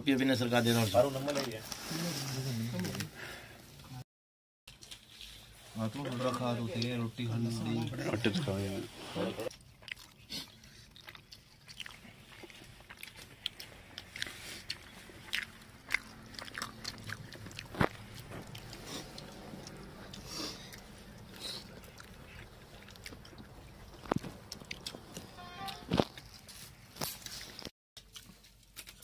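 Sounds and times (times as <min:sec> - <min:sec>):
people chewing and biting: 0:04.7 - 0:05.5, 0:09.4 - 0:29.0.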